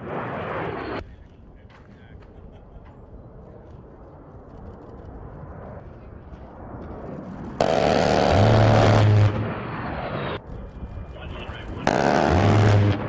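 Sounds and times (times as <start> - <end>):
jet engines: 0.0 - 13.0
gatling cannon burst: 7.6 - 9.6, 11.7 - 13.0.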